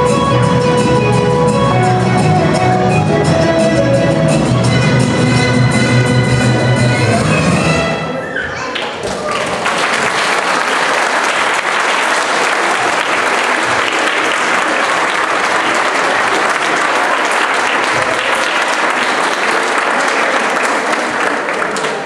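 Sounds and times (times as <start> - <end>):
audience applauding: 8.8 - 22.0.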